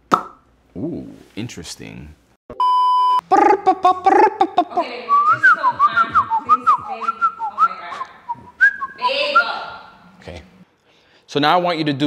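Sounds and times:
electronic beep tone: 2.6 - 3.2
high-pitched whistle-like chirps: 5.1 - 9.6.

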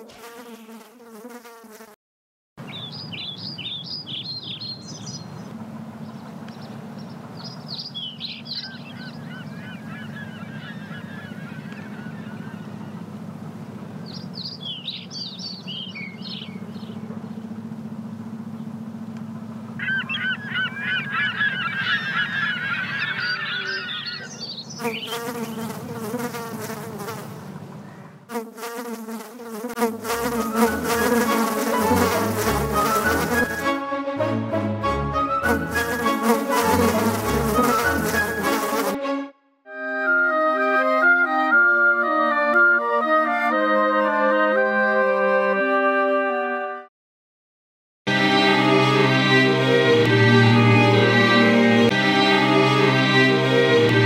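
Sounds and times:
housefly buzzing: 0.0 - 2.0, 23.4 - 27.6, 28.3 - 33.8, 35.4 - 39.1
birds chirping: 2.6 - 28.3
steady low hum: 4.8 - 28.3.

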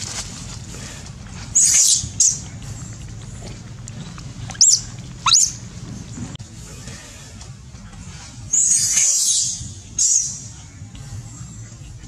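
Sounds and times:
macaques screeching: 1.5 - 2.5, 4.0 - 5.7.

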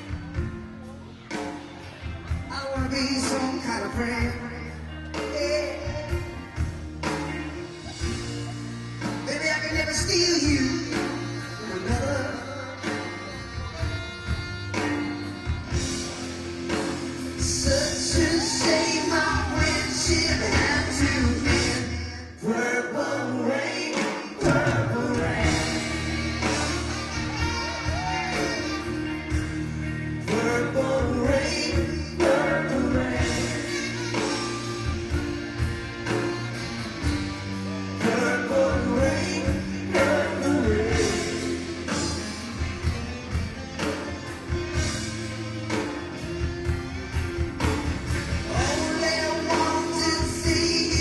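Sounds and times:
electric guitar: 0.0 - 22.6, 23.2 - 51.0
bass guitar: 0.0 - 51.0
drums: 0.0 - 51.0
man singing: 2.4 - 6.5, 9.2 - 13.8, 17.4 - 29.2, 30.2 - 34.5, 37.9 - 42.9, 48.4 - 51.0.

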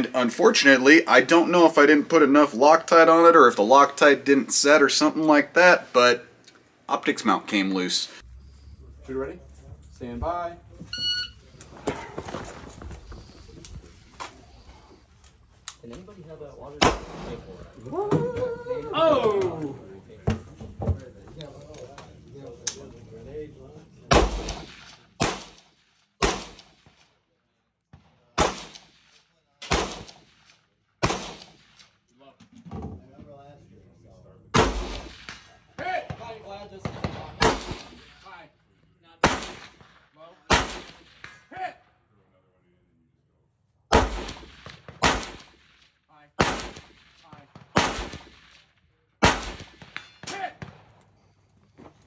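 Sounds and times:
rifle shots with echo: 16.7 - 17.7, 24.1 - 27.1, 28.3 - 31.9, 34.5 - 38.2, 39.2 - 41.4, 43.9 - 51.0.

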